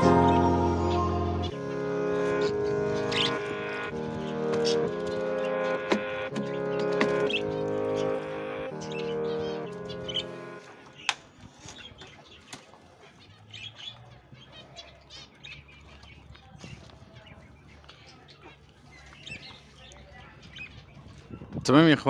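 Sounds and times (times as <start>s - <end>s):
small birds chirping and chattering: 0.2s - 22.0s.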